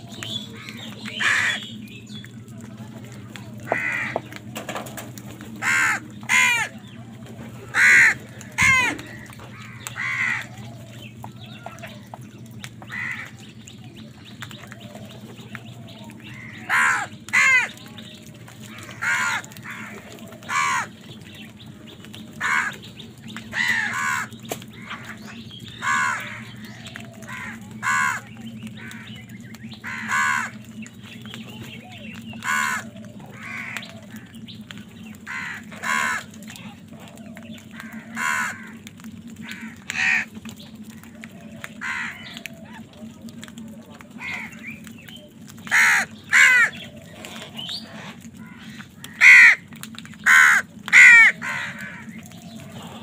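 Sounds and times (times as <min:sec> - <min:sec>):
crows cawing: 0:00.0 - 0:01.7, 0:03.6 - 0:06.9, 0:07.6 - 0:13.5, 0:16.1 - 0:17.8, 0:18.6 - 0:21.0, 0:22.4 - 0:30.8, 0:32.3 - 0:34.5, 0:35.2 - 0:42.9, 0:44.0 - 0:44.7, 0:45.6 - 0:53.0.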